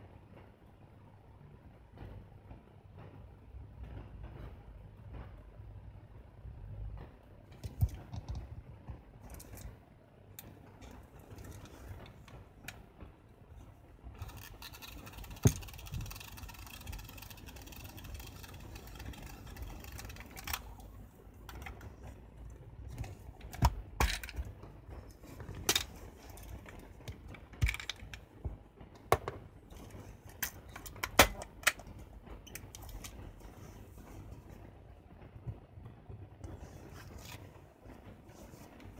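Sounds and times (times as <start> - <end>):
camera parts clicking: 14.2 - 20.7.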